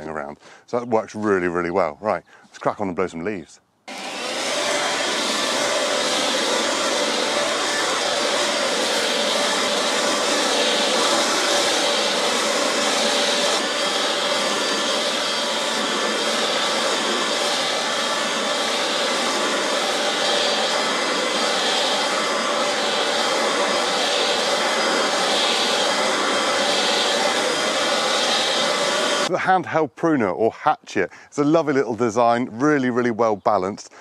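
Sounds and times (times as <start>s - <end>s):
leaf blower running: 3.9s - 29.4s.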